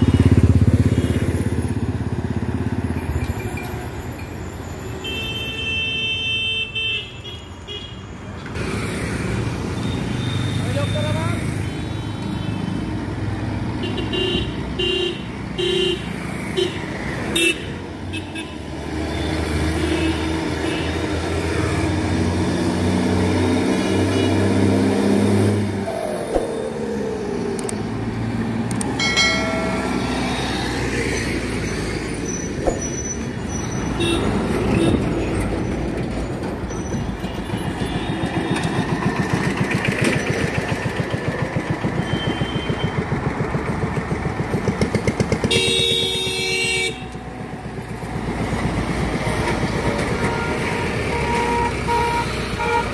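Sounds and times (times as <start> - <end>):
diesel trucks passing: 8.1 - 52.9
truck horn: 45.5 - 47.2, 49.3 - 52.9.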